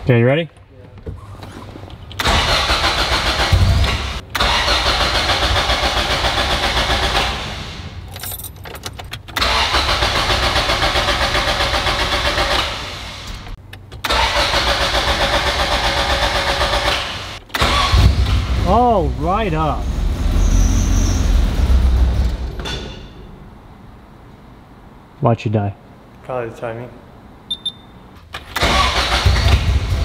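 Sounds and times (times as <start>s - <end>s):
car engine cranking and stalling: 1.9s - 23.4s, 28.2s - 30.0s.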